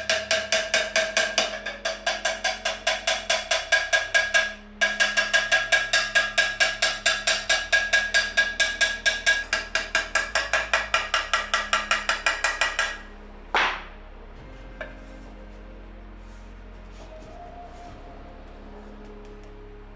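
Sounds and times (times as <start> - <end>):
hammer tapping metal vase: 0.0 - 13.9.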